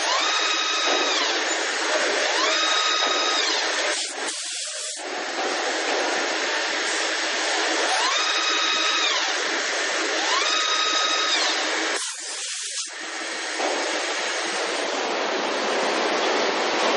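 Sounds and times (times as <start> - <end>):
hiss of coolant spray: 3.8 - 5.0, 11.9 - 12.9.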